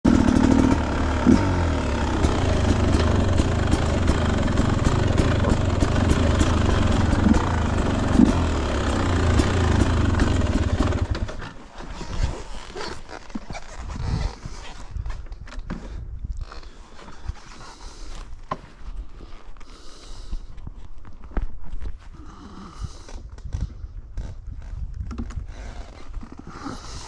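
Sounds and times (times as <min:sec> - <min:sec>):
dirt bike engine running: 0:00.0 - 0:11.6.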